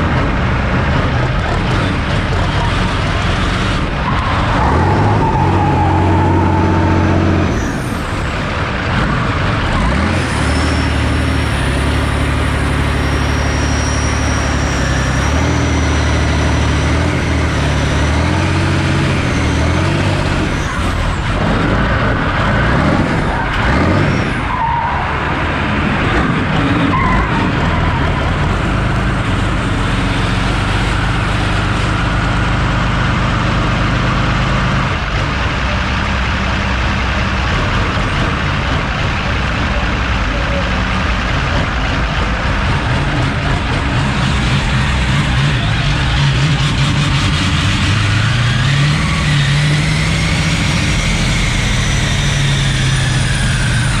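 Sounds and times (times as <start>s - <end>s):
car engine revving: 0.0s - 40.2s, 40.9s - 54.0s
tyres skidding: 0.0s - 54.0s.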